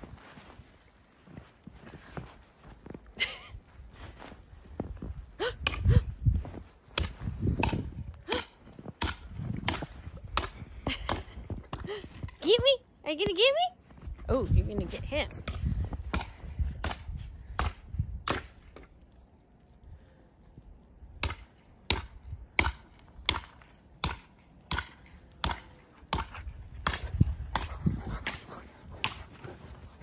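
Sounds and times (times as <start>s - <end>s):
footsteps crunching in snow: 0.0s - 5.4s, 6.2s - 10.3s, 27.7s - 30.0s.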